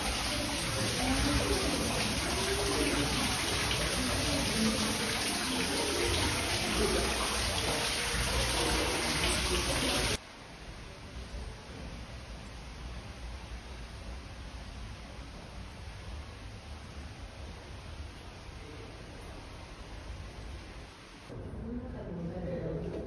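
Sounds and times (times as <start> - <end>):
water splashing into pool: 0.0 - 10.2.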